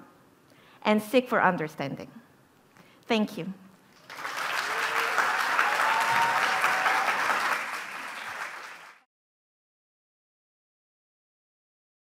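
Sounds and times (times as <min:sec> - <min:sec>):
audience applauding: 0:03.9 - 0:09.1.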